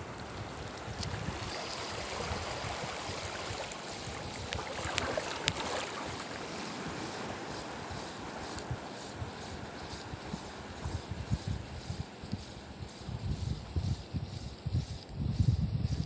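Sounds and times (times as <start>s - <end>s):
sea waves washing over rocks: 0.0s - 10.9s.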